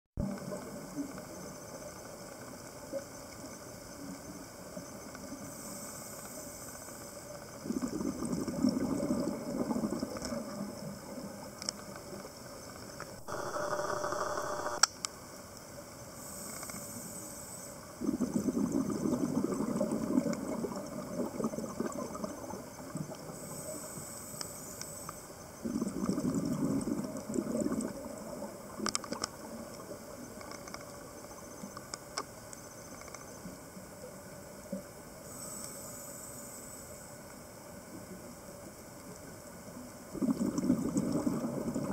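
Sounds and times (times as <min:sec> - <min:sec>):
regulator hiss on inhalation: 0:05.3 - 0:08.2, 0:13.2 - 0:14.9, 0:16.0 - 0:18.6, 0:23.3 - 0:26.0, 0:35.2 - 0:37.5
exhaled bubbles rushing: 0:07.6 - 0:10.8, 0:18.0 - 0:23.4, 0:25.6 - 0:28.8, 0:40.1 - 0:41.9.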